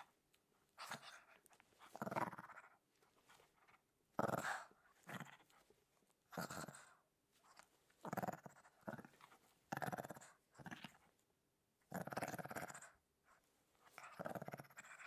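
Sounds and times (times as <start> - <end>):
puppy growling: 0.8 - 5.7, 6.3 - 7.0, 8.0 - 11.1, 11.9 - 13.0, 13.9 - 15.0.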